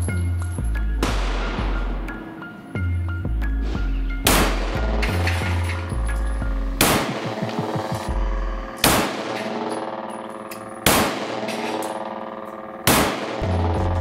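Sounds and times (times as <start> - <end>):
gunshots: 1.0 - 2.2, 4.2 - 5.4, 6.8 - 8.1, 8.8 - 10.0, 10.8 - 13.8.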